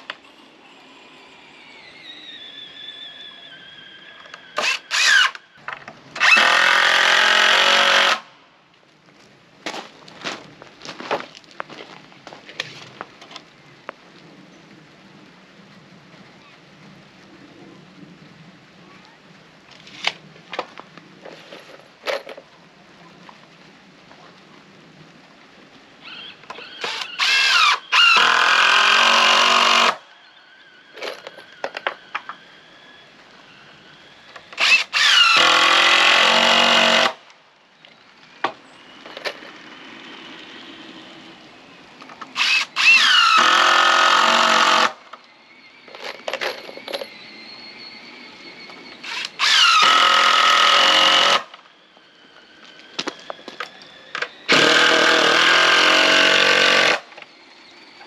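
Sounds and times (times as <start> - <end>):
power drill driving screws: 4.2 - 5.4, 6.2 - 8.2, 26.1 - 30.0, 34.3 - 37.2, 42.4 - 45.0, 49.0 - 51.6, 52.6 - 57.3.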